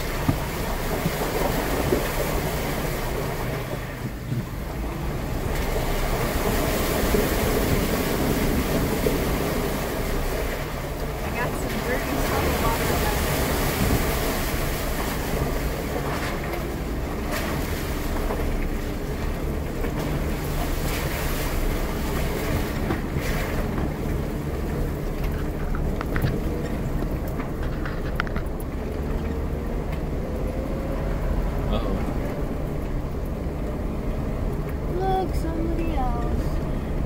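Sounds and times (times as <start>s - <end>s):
car engine hum: 0.0s - 37.0s
water splashes: 0.0s - 37.0s.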